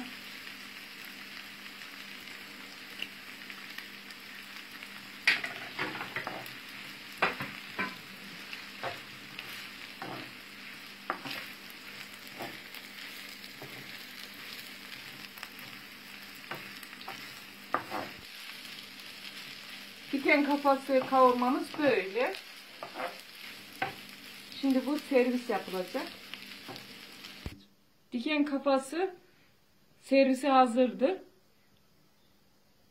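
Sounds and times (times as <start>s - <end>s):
food sizzling in a pan: 0.0s - 27.6s
wooden spoon scraping a pan: 5.3s - 6.6s, 7.2s - 15.8s, 16.4s - 18.3s, 20.2s - 24.1s.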